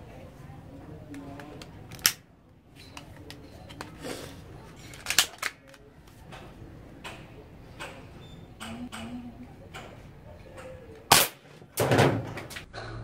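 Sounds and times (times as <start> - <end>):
plastic toy rifle clicks: 1.4 - 2.2, 4.9 - 5.8.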